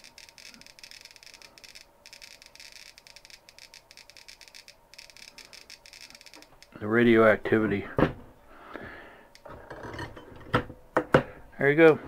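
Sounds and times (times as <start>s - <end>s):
geiger counter clicking: 0.0s - 6.8s.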